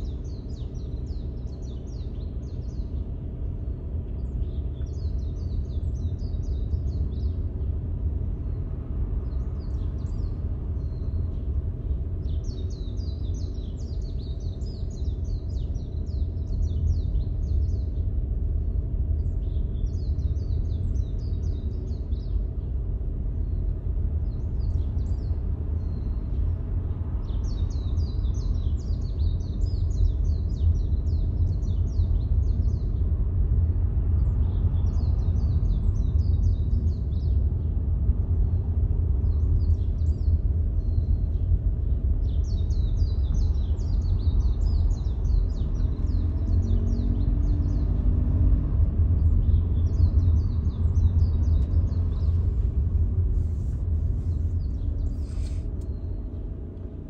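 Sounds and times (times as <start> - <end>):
car road rumble from inside: 23.9 - 57.0.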